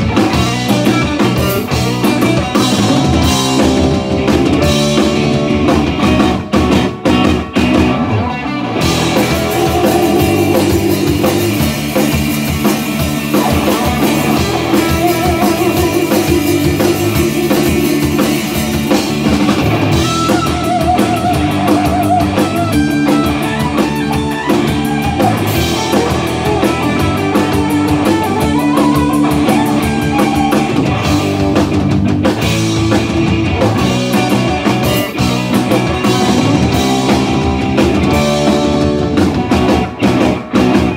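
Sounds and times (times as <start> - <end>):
electric guitar notes with vibrato: 0.0 - 31.6
blues-rock band playing: 0.0 - 40.9.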